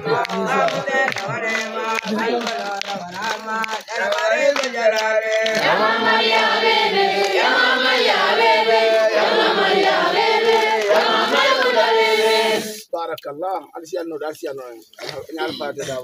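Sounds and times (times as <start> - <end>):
children chanting together: 5.6 - 12.7.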